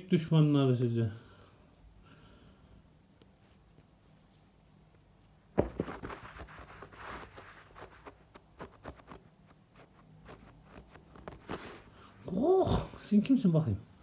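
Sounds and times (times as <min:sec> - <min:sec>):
hand rubbing and tapping carpet: 0:05.5 - 0:11.9.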